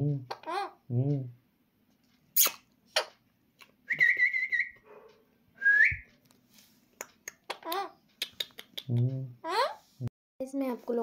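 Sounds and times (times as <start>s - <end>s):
short whistles: 3.9s - 4.8s, 5.6s - 6.1s.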